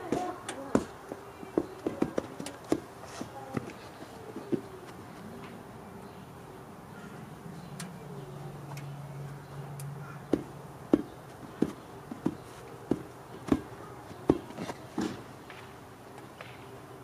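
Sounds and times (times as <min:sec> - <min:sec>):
sharp evenly spaced knocks: 0:00.0 - 0:02.9, 0:10.3 - 0:15.7.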